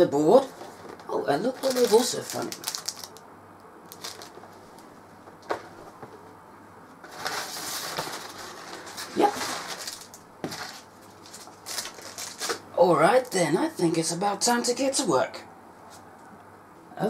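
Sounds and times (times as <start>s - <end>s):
packing paper rustling: 0.6s - 3.2s, 3.9s - 4.9s, 7.0s - 12.7s.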